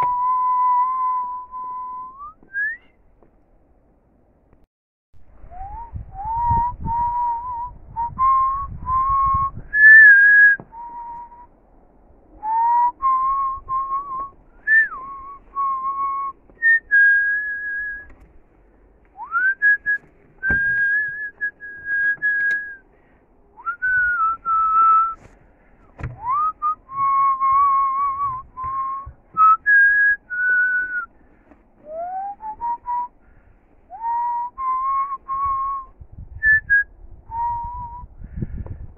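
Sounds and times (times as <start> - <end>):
person whistling a slow tune: 0.0 - 3.0, 5.4 - 11.5, 12.4 - 18.1, 19.2 - 22.8, 23.6 - 25.2, 26.1 - 31.1, 31.8 - 33.2, 33.9 - 38.2
low rumble: 5.2 - 31.2.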